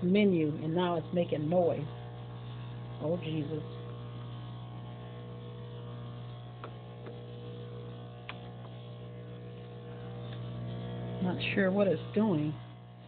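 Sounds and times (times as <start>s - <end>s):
espresso machine humming: 0.0s - 13.0s
faint clicks: 8.2s - 8.8s.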